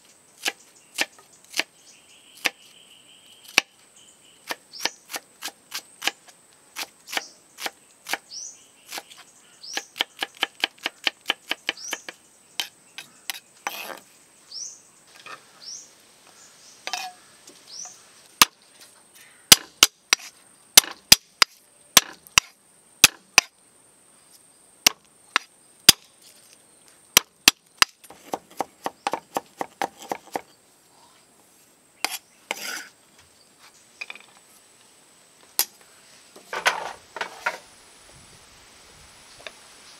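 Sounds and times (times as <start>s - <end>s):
knife chopping on wooden block: 27.2s - 30.4s.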